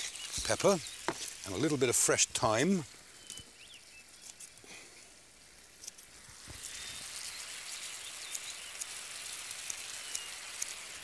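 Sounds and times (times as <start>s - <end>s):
sauce sizzling in frying pan: 0.0s - 4.5s, 5.2s - 11.0s
small crackles: 0.0s - 11.0s.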